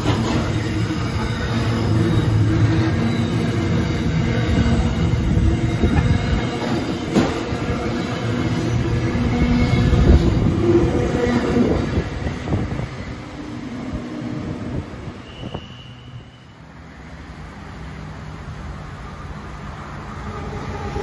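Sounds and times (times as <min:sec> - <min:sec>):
electric train approaching: 0:00.0 - 0:21.0
freight train wagons rumbling past: 0:00.0 - 0:21.0
short high squeal: 0:15.0 - 0:16.7.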